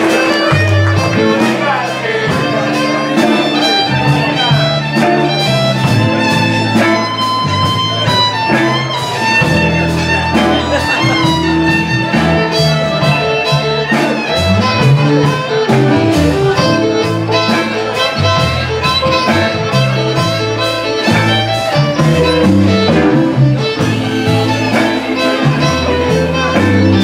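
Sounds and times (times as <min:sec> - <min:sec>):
fiddle bowing: 0:00.0 - 0:27.0
guitar: 0:00.0 - 0:27.0
upright bass: 0:00.0 - 0:27.0.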